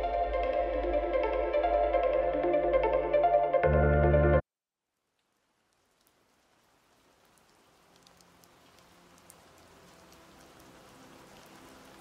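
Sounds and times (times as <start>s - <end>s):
faint hiss with light ticks: 5.1s - 12.0s.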